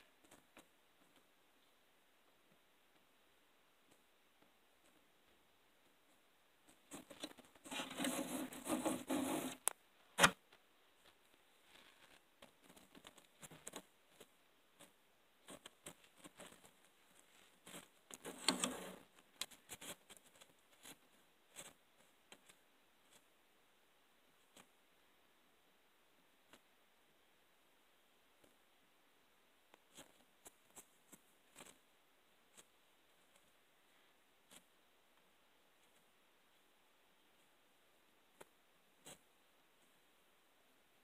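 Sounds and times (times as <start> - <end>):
scratching and rubbing on mesh: 6.7 - 9.7, 11.6 - 23.3.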